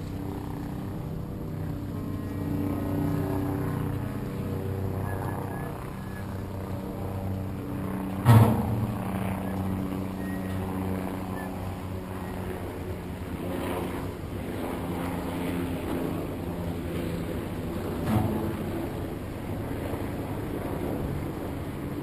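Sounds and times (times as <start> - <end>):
boat engine humming: 0.0 - 13.8
wind: 0.0 - 22.0
sharp thump: 8.2 - 9.0.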